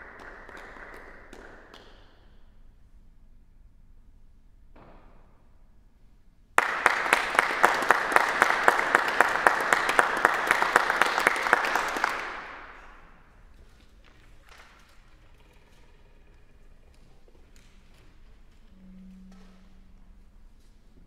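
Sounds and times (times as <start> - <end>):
musicians clapping hands: 0.0 - 2.2, 6.6 - 13.1.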